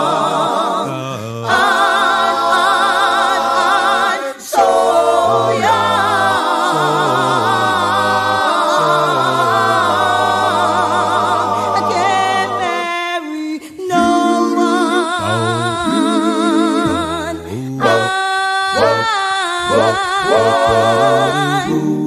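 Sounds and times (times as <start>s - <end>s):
vocal group singing in harmony: 0.0s - 22.0s.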